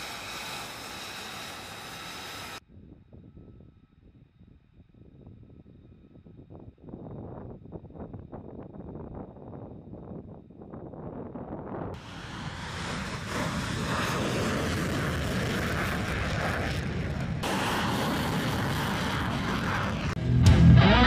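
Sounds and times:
jet engine roar: 0.0 - 2.6, 11.9 - 21.0
guitar music: 20.2 - 21.0.

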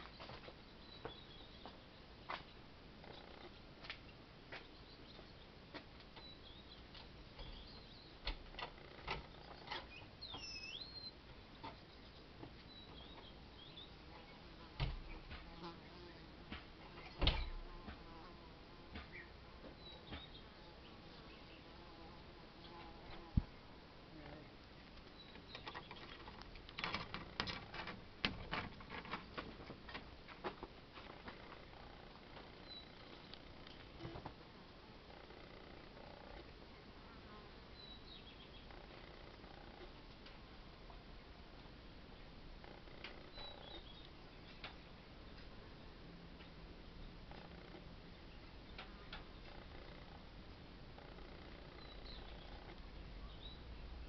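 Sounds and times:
small bird chirping: 0.0 - 5.5, 6.2 - 8.2, 8.8 - 14.4, 19.1 - 21.8, 25.0 - 26.4, 31.5 - 34.0, 37.7 - 39.8, 42.2 - 45.5, 51.0 - 54.0.

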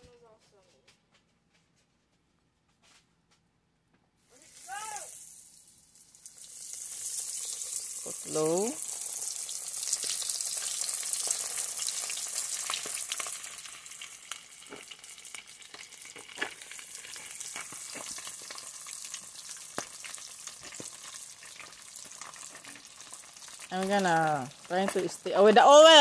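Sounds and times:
chicken frying in hot oil: 4.4 - 26.0
oil popping: 5.1 - 26.0.

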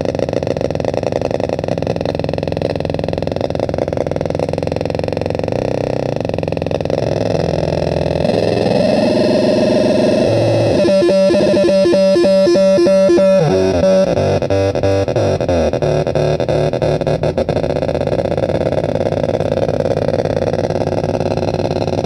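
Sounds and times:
distorted buzzing electronic tones: 8.2 - 17.6.

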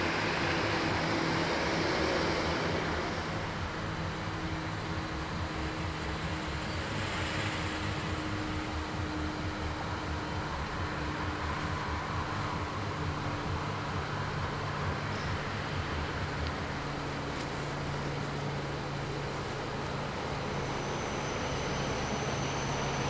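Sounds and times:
diesel railcar drone: 0.0 - 23.0
low engine hum: 0.0 - 23.0
road noise: 0.0 - 23.0.

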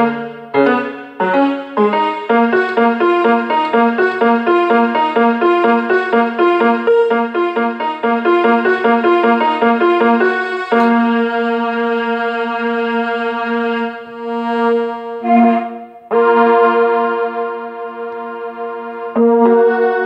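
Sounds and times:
quick repeated keyboard notes: 0.0 - 12.1
long held chord: 0.0 - 20.0.

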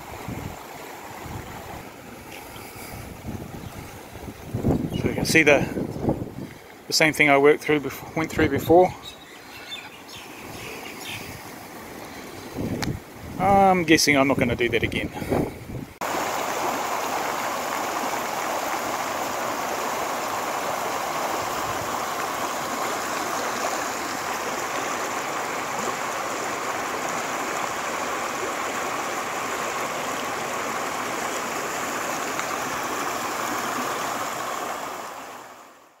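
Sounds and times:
floodwater rushing: 0.0 - 14.0, 16.0 - 36.0.

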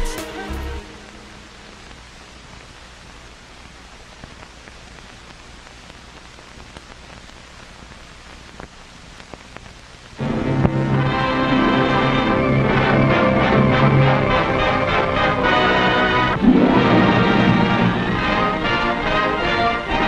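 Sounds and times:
music: 0.0 - 1.8, 10.2 - 20.0
film soundtrack hiss and crackles: 0.0 - 20.0.

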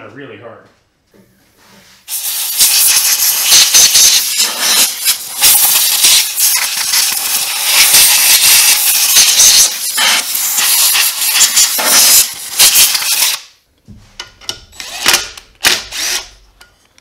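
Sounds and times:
compressed air blow gun hissing: 2.0 - 13.4.

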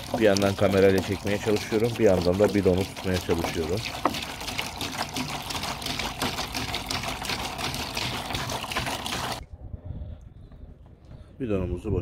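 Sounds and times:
water glugging from bottle into basin: 0.0 - 9.4.

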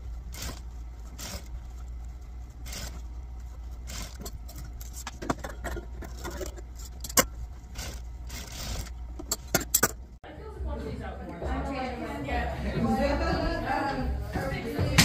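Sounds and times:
fabric rustling: 0.0 - 5.2, 6.1 - 9.2
sewing machine stitching: 0.0 - 10.0
low steady hum: 0.0 - 15.0.

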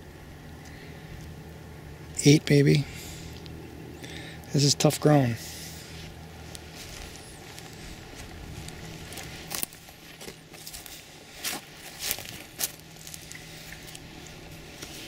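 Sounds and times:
faint low hum: 0.0 - 15.0
footsteps through dry brush: 5.4 - 15.0.

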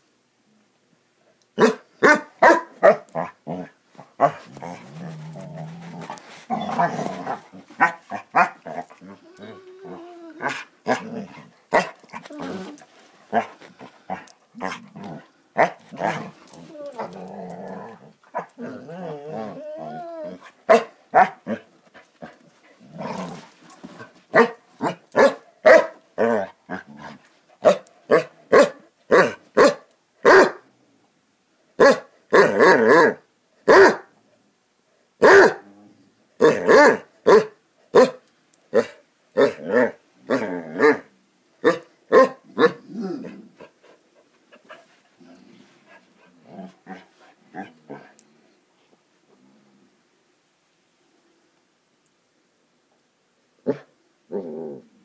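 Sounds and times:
dog barking: 1.6 - 3.1, 7.8 - 8.6, 20.7 - 21.4, 24.3 - 26.0, 27.6 - 30.6, 31.8 - 34.1, 35.2 - 35.6, 36.4 - 38.2, 41.6 - 42.8
dog growling: 3.1 - 20.6, 22.8 - 23.5, 42.6 - 43.7, 46.2 - 48.2, 53.7 - 55.0.

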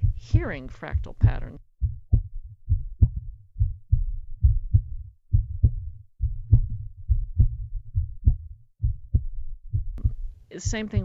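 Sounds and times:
heartbeat thumps: 0.0 - 11.0.

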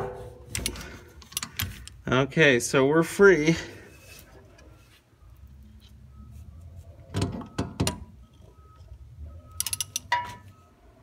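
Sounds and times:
hand ratchet clicking: 9.6 - 10.1.

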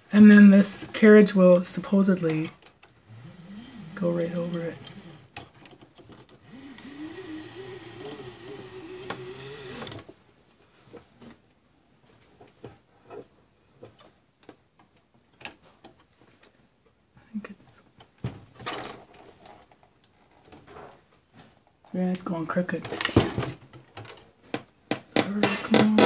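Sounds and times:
belt and motor whirring: 3.1 - 5.3, 6.4 - 10.0.

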